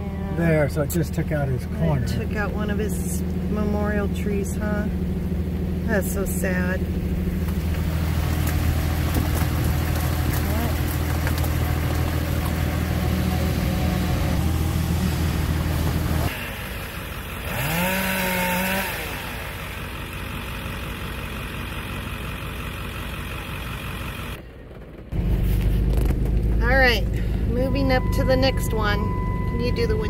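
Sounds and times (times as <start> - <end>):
truck engine and road rumble: 0.0 - 30.0
rising held tone: 27.6 - 30.0.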